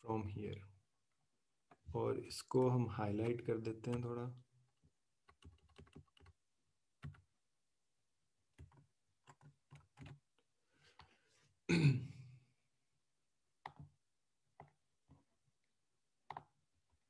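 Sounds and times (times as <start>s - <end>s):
keyboard keystrokes: 5.3s - 6.4s, 8.6s - 10.2s
person clearing throat: 11.7s - 12.3s.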